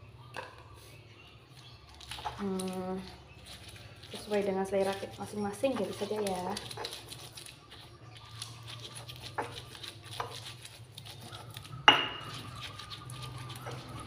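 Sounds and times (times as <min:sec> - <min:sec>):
stone pestle grinding in mortar: 0:02.1 - 0:14.0.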